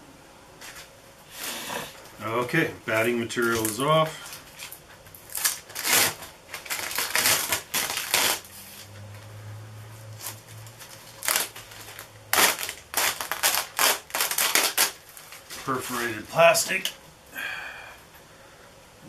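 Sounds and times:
plastic film peeling and crinkling: 0:03.0 - 0:09.3, 0:10.0 - 0:17.0.

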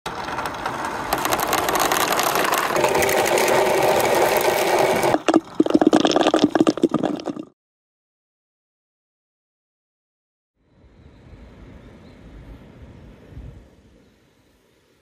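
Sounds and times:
balls clacking together: 0:00.1 - 0:07.4
balls rattling down marble run: 0:00.1 - 0:07.4.

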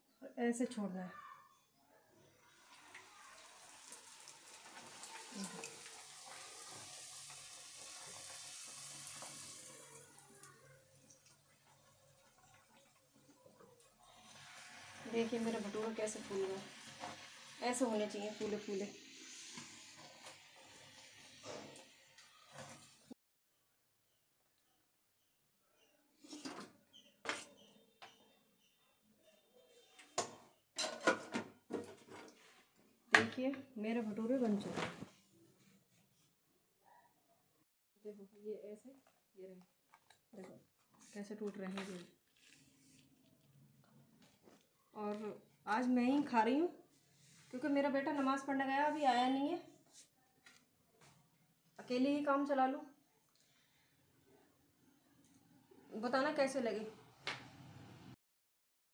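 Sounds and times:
food deep-frying in hot oil: 0:02.5 - 0:23.1
dishes clattering: 0:30.2 - 0:32.3
dishes and utensils clinking: 0:30.2 - 0:32.4.

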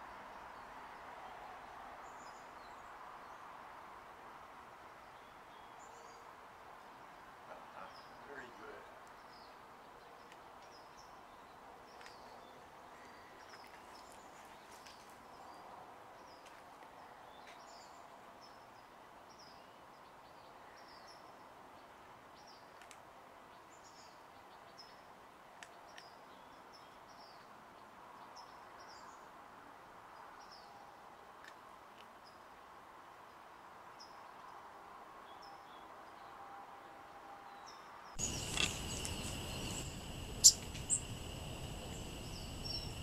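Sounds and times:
low background noise: 0:00.0 - 0:43.0
faint high chirps: 0:38.2 - 0:43.0.

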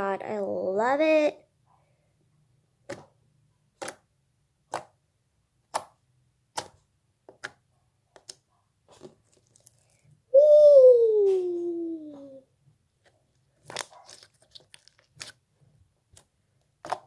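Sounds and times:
slime clicking and popping: 0:05.7 - 0:07.6.

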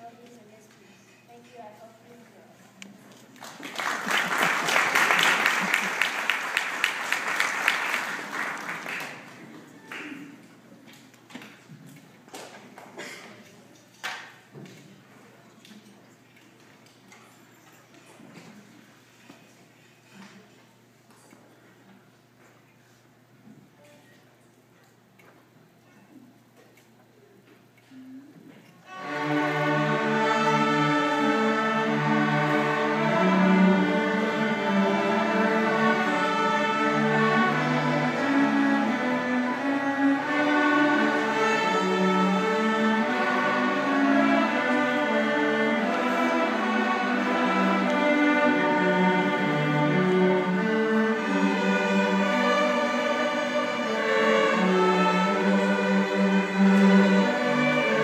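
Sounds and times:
string ensemble playing classical piece: 0:03.1 - 0:11.0, 0:28.8 - 0:58.0.

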